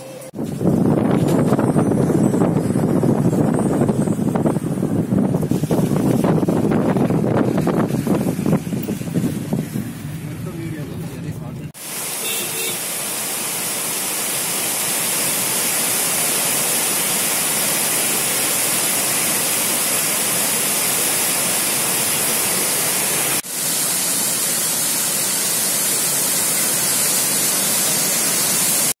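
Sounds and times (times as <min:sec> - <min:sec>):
waterfall roaring: 0:11.8 - 0:28.9.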